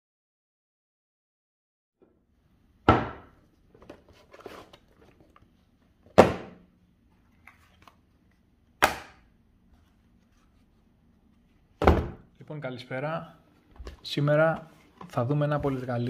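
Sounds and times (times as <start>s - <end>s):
boxes knocking on wooden table: 6.2s - 6.6s, 11.8s - 12.2s.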